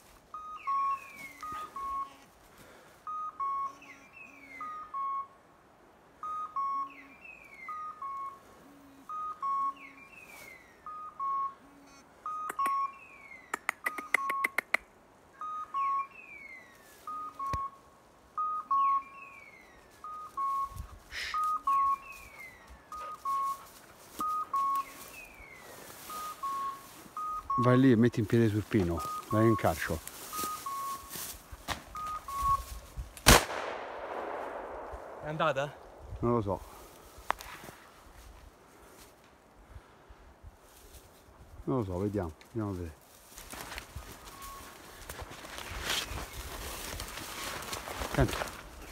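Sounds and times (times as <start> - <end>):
beeper collar two-note beep: 0.4 - 2.2, 3.1 - 5.3, 9.1 - 10.0, 10.9 - 13.4.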